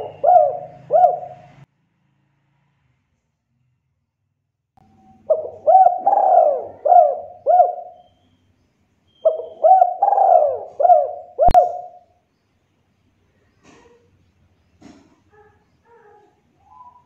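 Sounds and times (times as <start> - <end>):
dove cooing: 0.0 - 1.6, 5.0 - 8.1, 9.2 - 12.1, 15.3 - 17.0.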